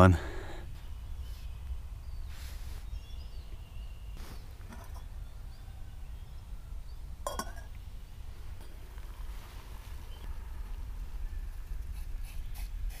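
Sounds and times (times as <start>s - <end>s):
faint bird chirps: 0.4s - 12.8s
camping gear clink: 4.2s - 5.1s, 7.2s - 7.7s.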